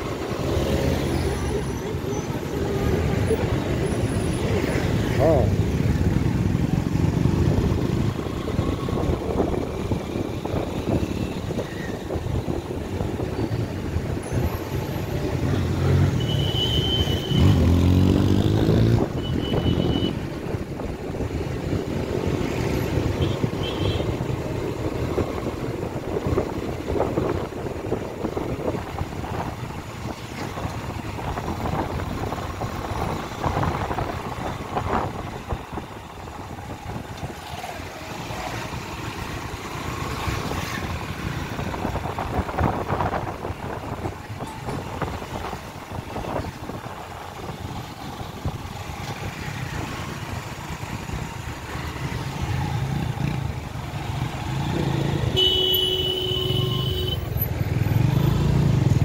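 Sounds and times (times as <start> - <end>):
road vehicle rumble: 0.0 - 59.0
engine revving: 17.3 - 19.1.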